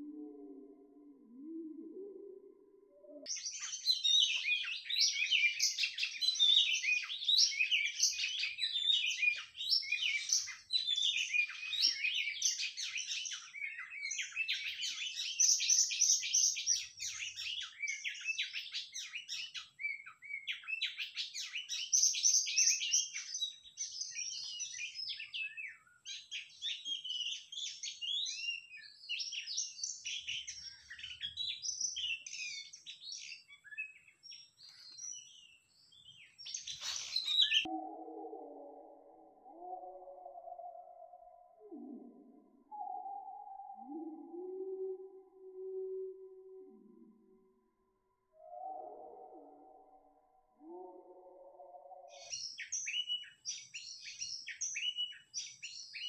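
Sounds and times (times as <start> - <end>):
bird whistles and chirps: 3.2 - 37.7, 42.6 - 45.2, 51.8 - 56.0.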